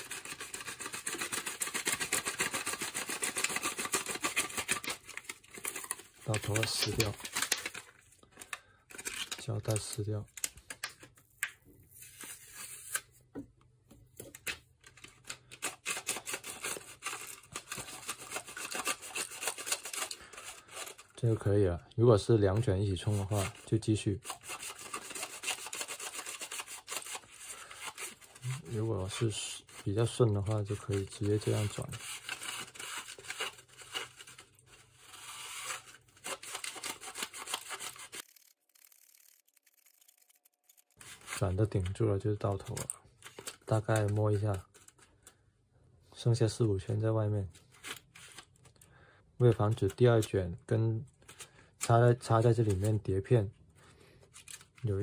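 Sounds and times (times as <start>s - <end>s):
tape peeling with crackles: 35.2s - 41.4s.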